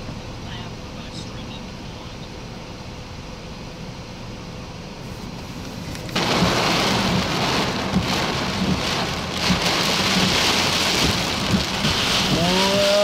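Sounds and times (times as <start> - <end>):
heavy wind-driven rain: 5.7 - 13.0
hail striking: 6.1 - 13.0.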